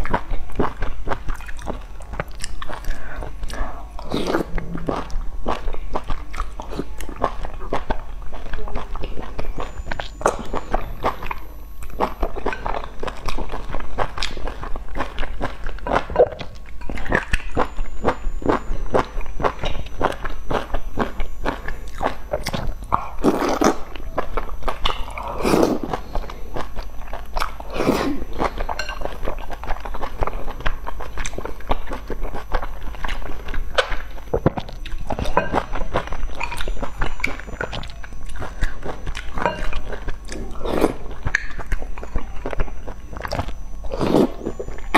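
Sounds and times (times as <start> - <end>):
wet chewing and smacks: 0.0 - 3.6.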